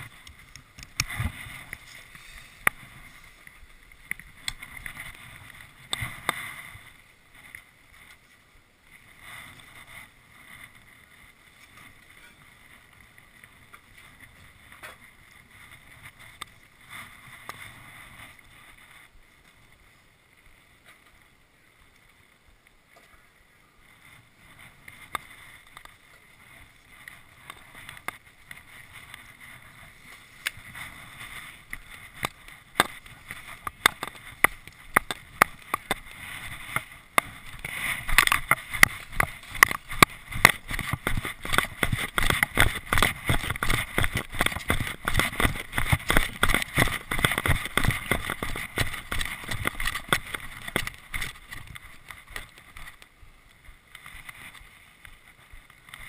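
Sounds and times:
gear knocking and rustling: 24.5 - 53.1
footsteps crunching in snow: 35.2 - 52.1.

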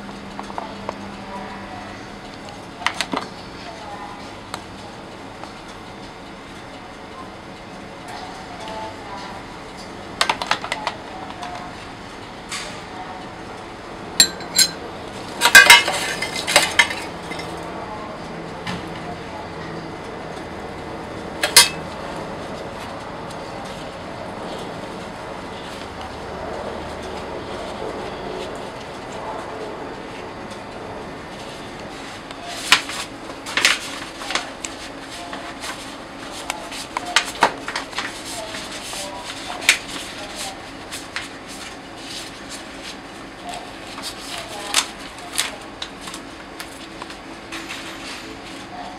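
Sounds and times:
steady background noise: 0.0 - 48.9
metal spoon clinking containers: 14.2 - 14.8, 15.4 - 17.5, 21.4 - 21.8.

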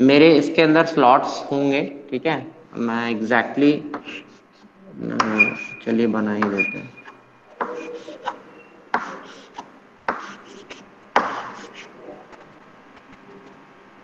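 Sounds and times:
chalk tapping on blackboard: 3.9 - 4.4, 5.2 - 5.8, 6.4 - 12.0
chalk scratching: 4.0 - 4.6, 7.6 - 12.4
chalk clicks: 6.4 - 12.4.

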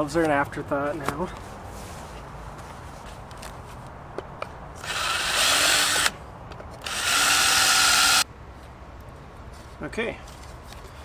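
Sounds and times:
cordless drill boring plastic: 4.8 - 6.2, 6.8 - 8.2.

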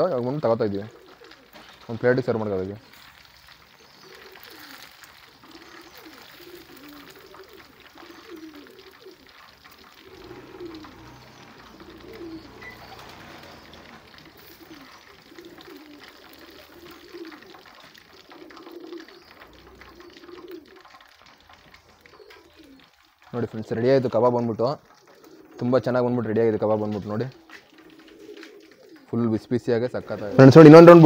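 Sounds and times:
oil frying: 0.0 - 31.0
pigeons cooing: 0.0 - 31.0.

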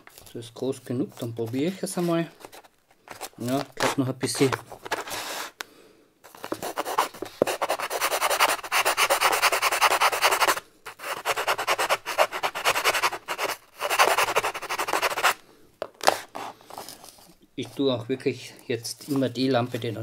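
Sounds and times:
hand file rasping in foam: 6.4 - 15.4.

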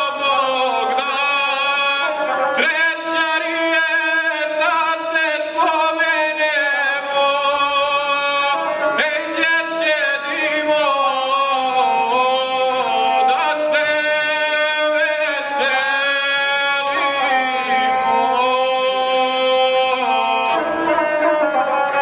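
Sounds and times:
bowed string fiddle: 0.0 - 22.0
man singing chanted song: 0.0 - 22.0.

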